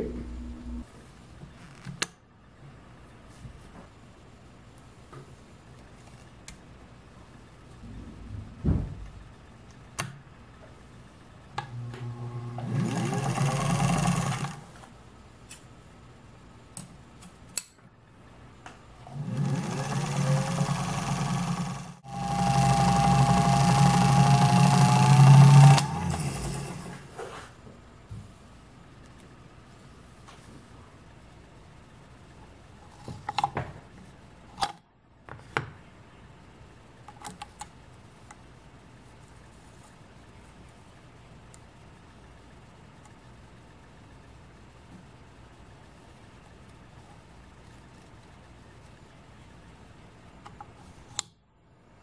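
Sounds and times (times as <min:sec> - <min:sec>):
sewing machine motor whirring: 0:11.6 - 0:14.8, 0:19.0 - 0:27.1.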